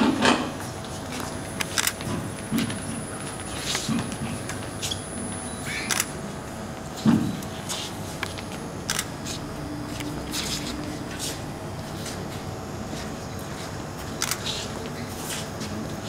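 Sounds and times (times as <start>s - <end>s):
low murmur of room: 0.0s - 16.0s
camera shutters clicking: 1.6s - 2.1s, 5.8s - 6.2s, 8.2s - 9.1s, 14.2s - 14.6s.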